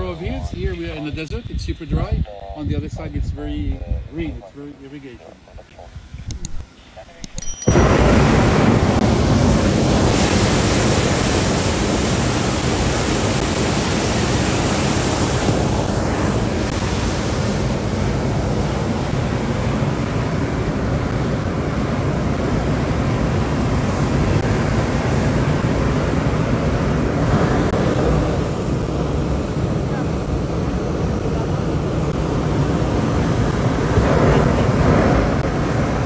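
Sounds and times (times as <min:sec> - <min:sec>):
propane burner blast: 0:07.7 - 0:36.0.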